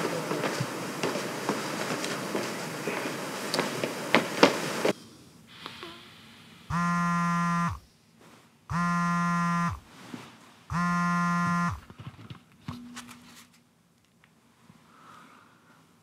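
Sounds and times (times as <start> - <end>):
mobile phone buzzing: 6.7 - 7.8, 8.7 - 9.9, 10.7 - 11.9.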